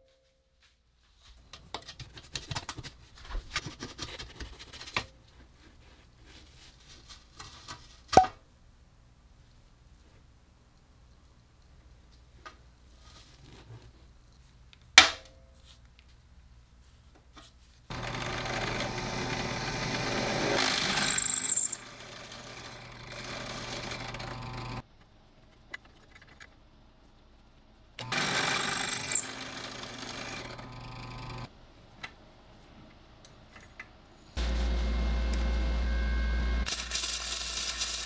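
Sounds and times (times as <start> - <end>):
drill press drilling into metal: 17.9 - 24.8, 28.0 - 31.5.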